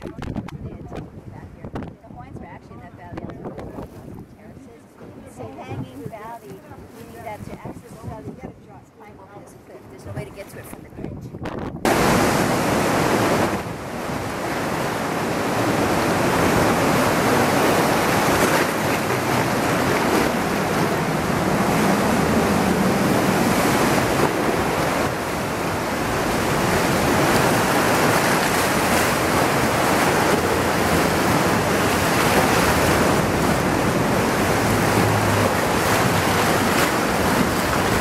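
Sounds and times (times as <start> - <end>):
wind buffeting microphone: 0.0 - 38.0
ocean surf rushing: 11.8 - 38.0.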